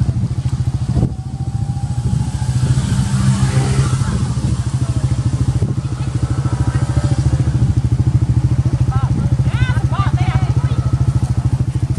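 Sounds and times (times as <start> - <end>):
engine idling with low throb: 0.0 - 11.9.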